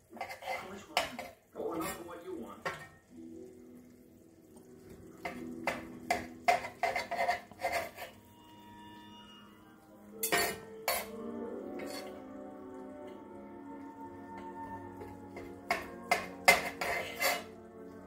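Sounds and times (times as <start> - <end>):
knife scraping skillet: 0.0 - 2.0, 5.2 - 8.3, 10.2 - 12.3, 15.0 - 17.7
fork clinking on pan: 5.2 - 8.2, 10.2 - 11.2, 15.4 - 17.6.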